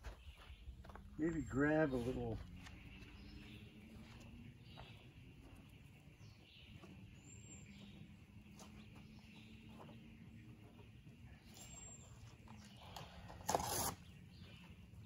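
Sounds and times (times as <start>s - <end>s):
faint bird chirps: 0.0s - 15.0s
cardboard being torn: 13.4s - 14.0s.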